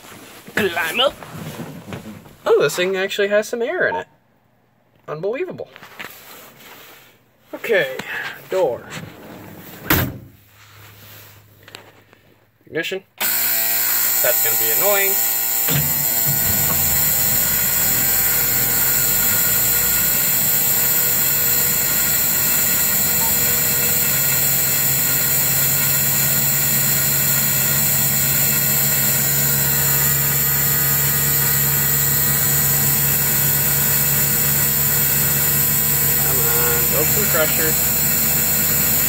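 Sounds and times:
warning buzzer: 13.2 - 39.0
diesel engine idling: 15.9 - 39.0.

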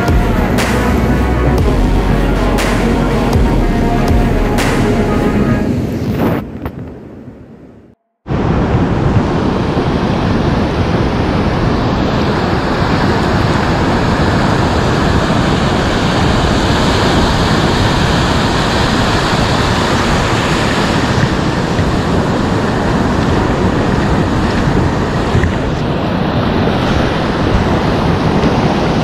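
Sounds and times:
wind noise on microphone: 0.0 - 29.0
surf breaking on beach: 8.3 - 29.0.

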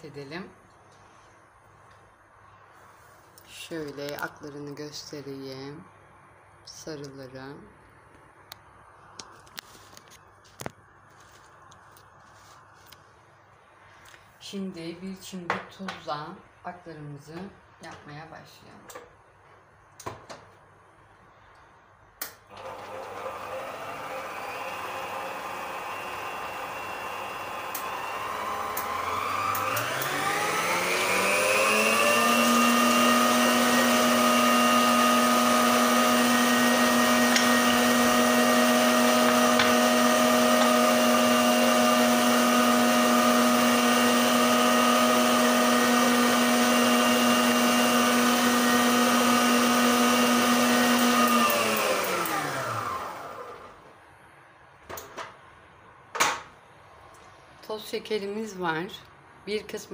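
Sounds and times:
stand mixer motor whining: 22.5 - 53.8.

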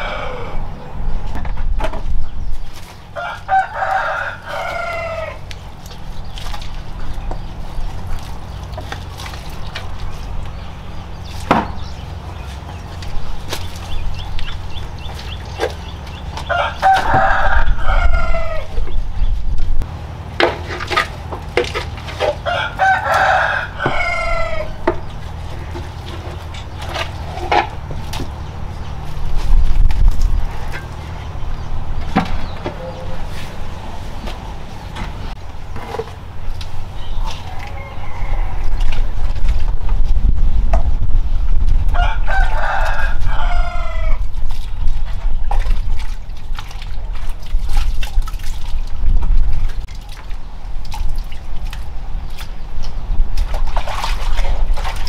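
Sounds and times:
rooster crowing: 0.0 - 0.8, 3.2 - 5.4, 16.4 - 18.8, 22.3 - 24.8, 37.0 - 39.1, 41.9 - 44.2
scoop scraping metal pot: 20.4 - 22.5.

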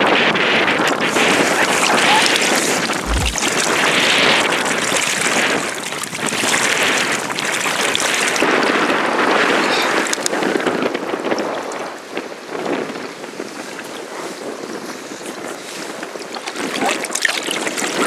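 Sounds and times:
gusty wind buffeting microphone: 0.0 - 16.8
choppy water: 0.0 - 18.0
low bump: 3.0 - 3.7.

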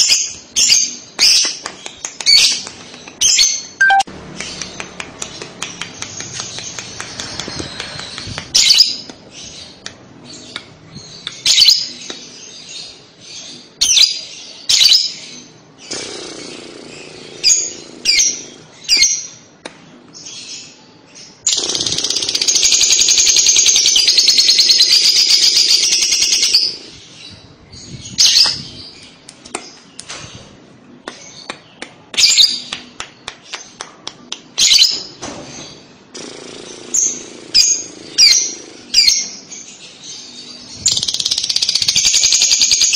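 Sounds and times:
lovebird chirping: 3.2 - 5.4.

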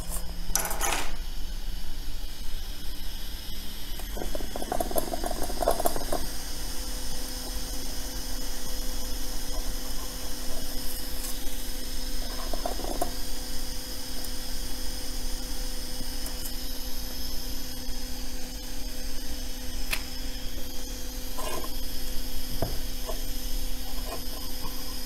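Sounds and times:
electrical hum of equipment: 0.0 - 25.0
metal stencil scraping: 21.3 - 21.8, 23.8 - 24.8.

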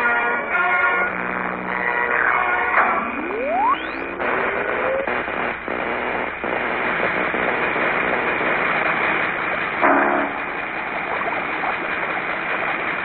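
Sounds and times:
electrical crackle and buzz: 0.0 - 13.0
rising electric whine: 1.1 - 8.9.

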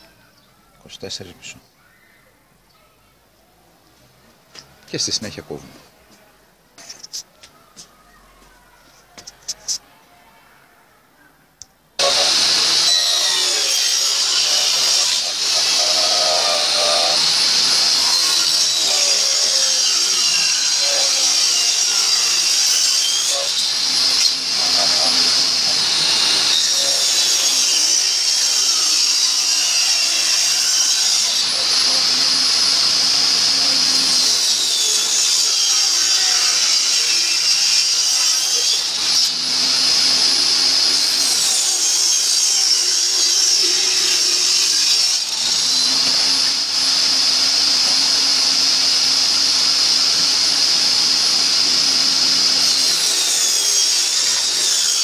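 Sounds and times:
table saw cutting wood: 12.0 - 55.0.

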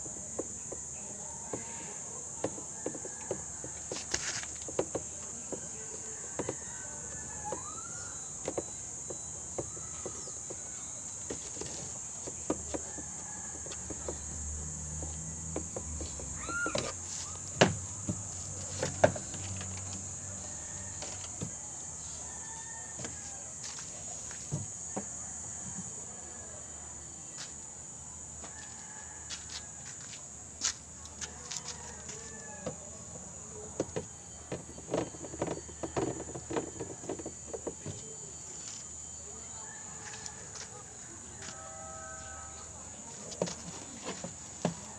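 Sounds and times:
insects chirring: 0.0 - 44.9.

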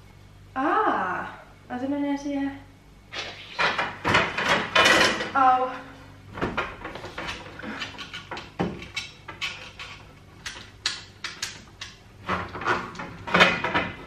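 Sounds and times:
wooden knocks and clatters: 12.3 - 14.0.

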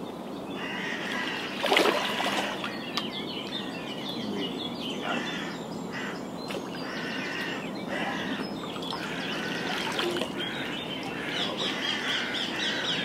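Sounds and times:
small birds chirping: 0.0 - 13.0
fish splashing in shallow water: 0.8 - 2.8, 6.5 - 11.6.

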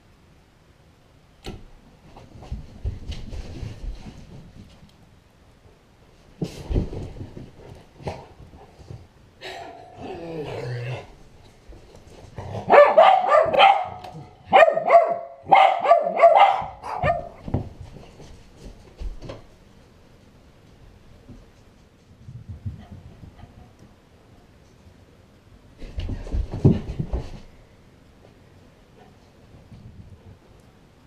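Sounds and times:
dog growling: 9.9 - 11.2
dog barking: 12.6 - 17.4.

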